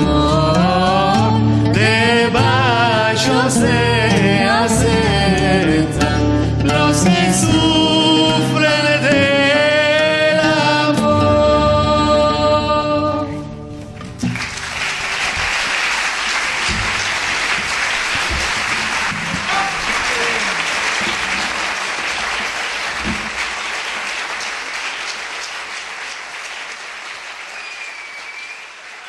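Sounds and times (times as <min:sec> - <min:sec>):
audience applauding: 0:14.1 - 0:29.0.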